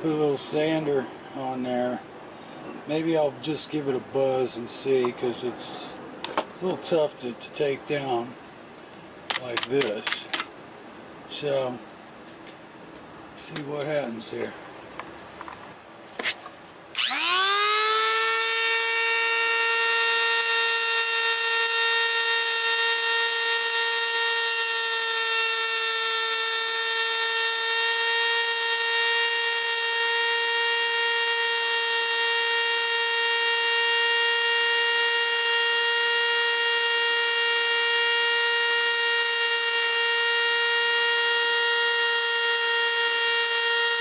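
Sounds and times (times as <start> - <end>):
rotary tool whine: 16.2 - 44.0.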